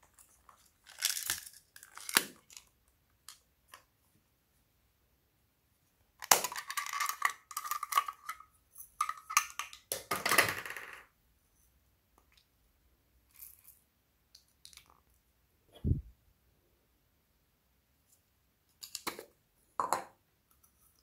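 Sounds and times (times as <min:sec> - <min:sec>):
plastic toy clicking and rattling: 0:06.2 - 0:08.4.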